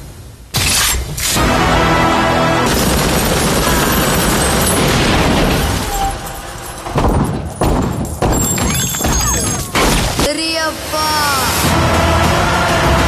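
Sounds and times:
background music: 0:01.2 - 0:08.5, 0:10.8 - 0:13.0
heavy hits: 0:01.4 - 0:10.3
machine-gun fire: 0:02.6 - 0:06.2.

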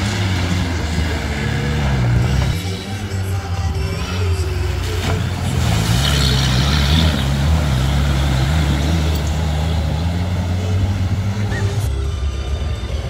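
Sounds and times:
small tractor engine running hard: 0:00.0 - 0:11.9
mud spraying: 0:04.7 - 0:10.6.

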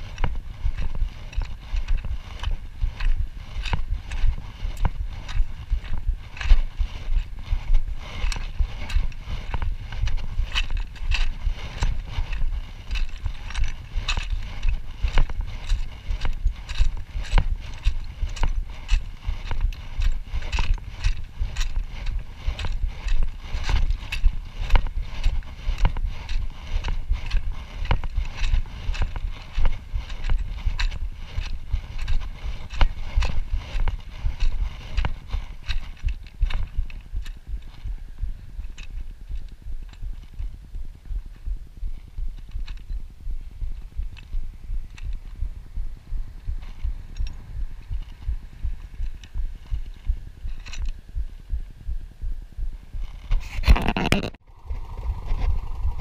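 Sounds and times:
wind rumbling on microphone: 0:00.0 - 0:56.0
knocks and rattles: 0:00.1 - 0:37.9.

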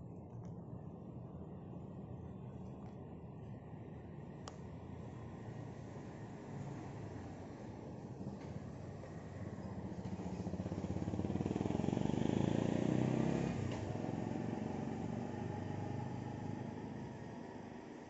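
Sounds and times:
vehicle engine passing by: 0:08.8 - 0:17.8.

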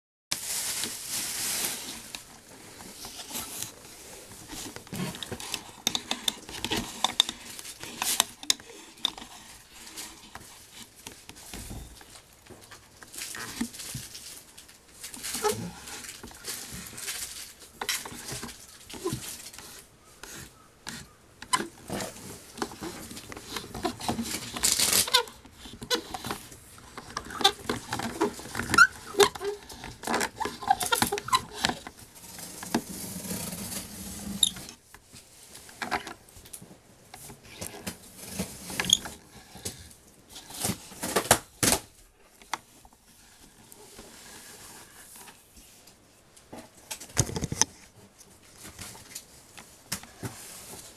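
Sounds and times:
doll limbs knocking and rubbing: 0:17.7 - 0:33.6.

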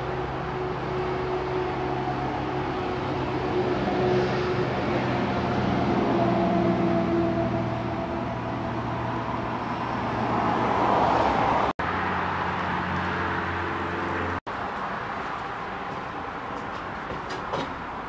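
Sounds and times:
low engine-like hum: 0:00.0 - 0:10.3
traffic noise: 0:00.0 - 0:18.0.

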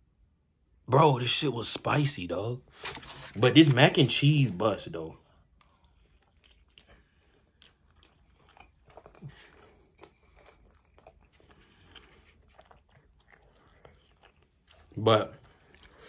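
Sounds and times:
faint chewing: 0:04.8 - 0:16.0.

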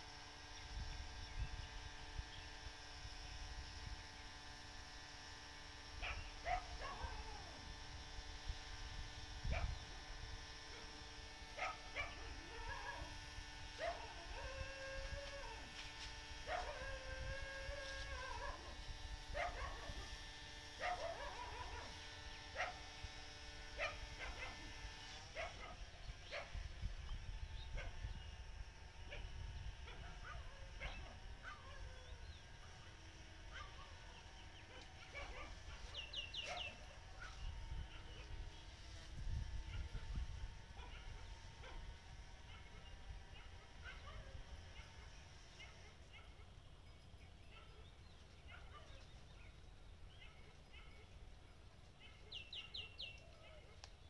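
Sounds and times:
faint hum: 0:00.0 - 0:54.0
dog barking: 0:06.0 - 0:07.3, 0:11.6 - 0:13.1, 0:13.8 - 0:14.6, 0:16.5 - 0:17.0, 0:18.1 - 0:18.8, 0:19.4 - 0:20.1, 0:20.8 - 0:22.0, 0:22.6 - 0:22.8, 0:23.8 - 0:24.7, 0:25.4 - 0:26.6, 0:29.1 - 0:32.0, 0:33.5 - 0:34.0, 0:34.7 - 0:38.3, 0:39.7 - 0:40.0, 0:40.8 - 0:41.8, 0:42.4 - 0:46.5, 0:47.5 - 0:47.9, 0:48.5 - 0:49.0, 0:50.2 - 0:51.2
dog yelping: 0:06.0 - 0:07.5, 0:11.6 - 0:13.1, 0:16.5 - 0:18.8, 0:20.8 - 0:22.0, 0:29.9 - 0:32.2, 0:33.5 - 0:34.0, 0:34.7 - 0:38.2, 0:40.8 - 0:41.8, 0:42.5 - 0:46.4, 0:50.2 - 0:51.1.

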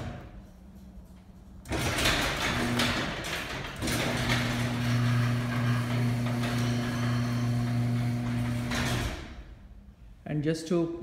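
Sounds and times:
garage door opener motor hum: 0:01.6 - 0:09.5
garage door travelling in tracks: 0:01.6 - 0:09.5.

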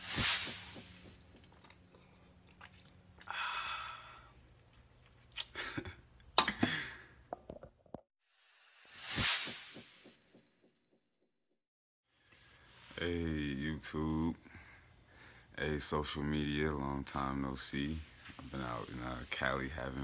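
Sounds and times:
man sighing: 0:03.3 - 0:04.3
man breathing: 0:03.3 - 0:04.4, 0:14.4 - 0:15.6
whoosh transition effect: 0:08.6 - 0:10.1.

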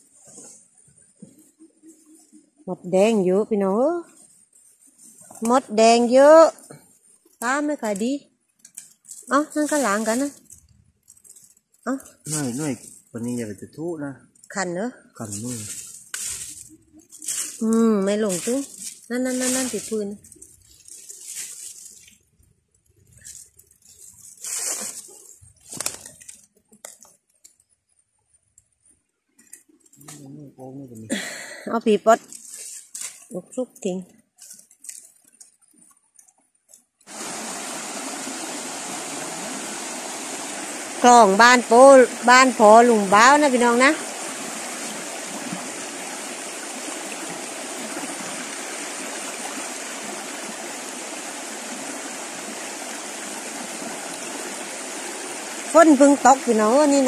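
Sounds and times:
leaves rustling: 0:00.0 - 0:27.7, 0:31.1 - 0:36.0, 0:36.7 - 0:57.0
sharp crackles: 0:15.2 - 0:27.7
plastic bag rustling: 0:15.4 - 0:26.5
stream rushing over rocks: 0:37.1 - 0:57.0.

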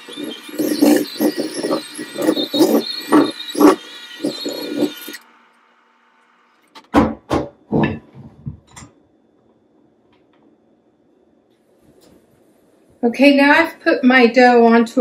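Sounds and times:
electric hand mixer running: 0:00.0 - 0:06.4.

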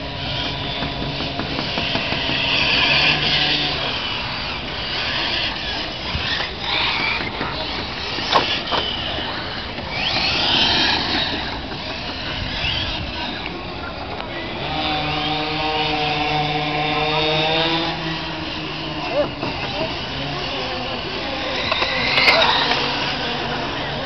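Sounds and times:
rc car motors whining: 0:00.0 - 0:24.0.

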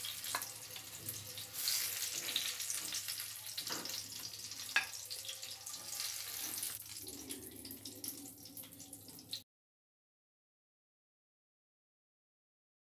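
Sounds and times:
oil sizzling in a frying pan: 0:00.0 - 0:09.4.

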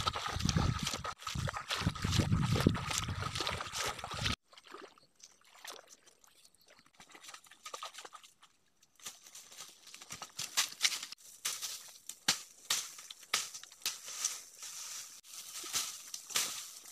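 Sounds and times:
footsteps sloshing through water: 0:00.0 - 0:11.8
feet crackling through dry leaves: 0:09.0 - 0:16.9.

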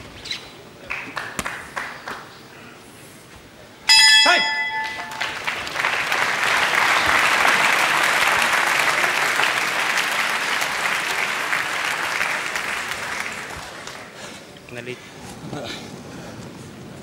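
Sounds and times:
arena crowd applauding: 0:00.8 - 0:02.3, 0:04.6 - 0:14.5.

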